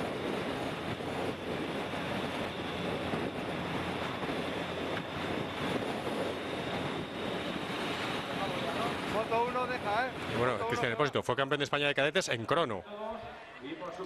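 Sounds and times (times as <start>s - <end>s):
wind on microphone: 0.0s - 11.0s.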